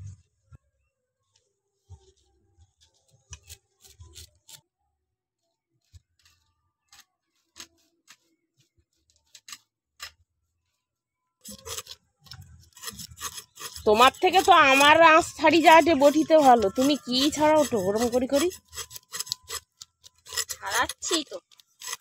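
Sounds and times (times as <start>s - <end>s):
fish scaler scraping scales: 3.3s - 4.6s, 5.9s - 8.4s, 11.4s - 22.0s.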